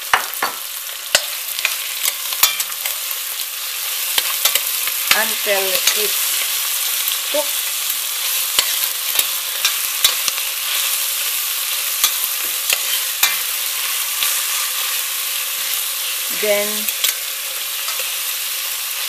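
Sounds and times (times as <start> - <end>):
meat and onions sizzling: 0.0 - 19.0.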